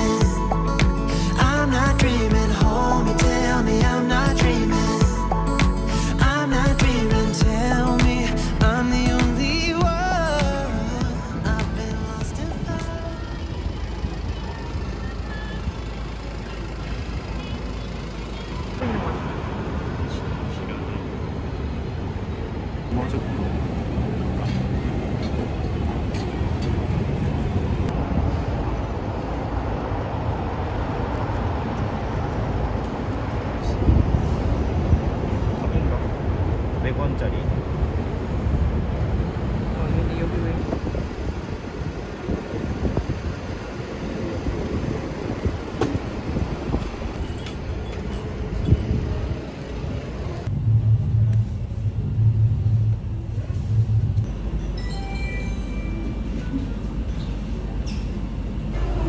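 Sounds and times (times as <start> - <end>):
music with pulsing bass beat: 0.0 - 12.9
city traffic rumble: 0.0 - 59.0.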